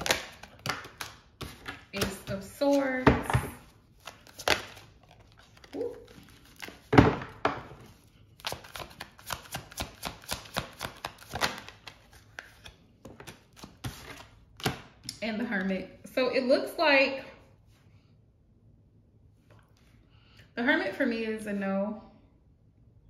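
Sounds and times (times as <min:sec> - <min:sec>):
cards being shuffled: 0:00.0 - 0:03.0, 0:03.9 - 0:06.9, 0:07.8 - 0:14.9.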